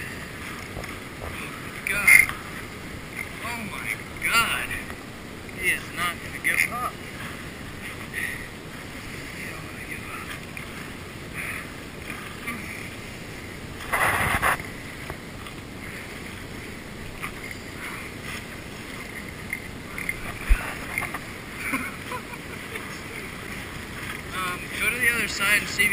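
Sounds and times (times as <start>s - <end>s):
wind noise on microphone: 13.8s - 14.7s.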